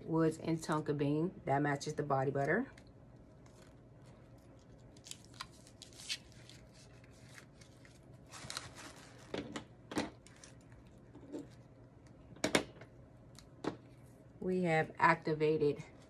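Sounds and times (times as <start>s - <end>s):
gift bag and tissue rustling: 3.2s - 9.5s, 10.2s - 11.6s.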